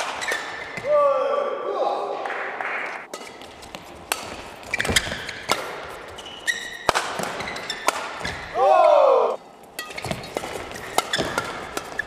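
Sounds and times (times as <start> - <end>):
shoes squeaking on floor: 0.0 - 0.8, 3.2 - 8.6, 9.8 - 12.0
rackets hitting shuttlecock: 0.0 - 0.9, 3.0 - 9.0, 9.6 - 12.0.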